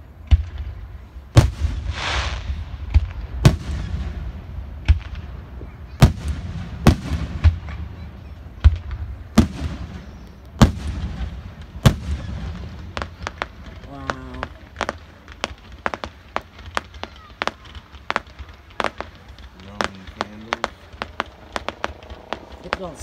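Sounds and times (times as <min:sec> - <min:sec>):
fireworks bursting: 0:00.0 - 0:23.0
short hiss: 0:01.8 - 0:02.7
low rumble: 0:19.2 - 0:23.0.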